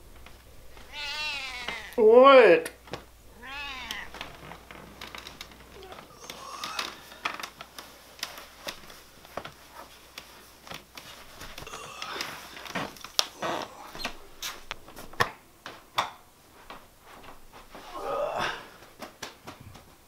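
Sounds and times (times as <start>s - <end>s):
cat meow: 0.8s - 2.0s, 3.3s - 4.3s
slippers shuffling on wooden floor: 2.8s - 18.0s.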